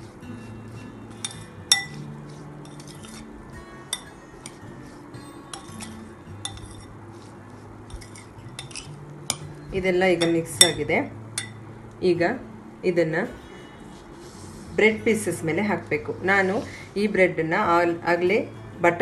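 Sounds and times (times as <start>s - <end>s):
spoon clinking against glass bowl: 1.1s - 3.2s, 3.9s - 4.6s, 5.5s - 6.9s, 7.9s - 9.5s, 10.2s - 11.6s.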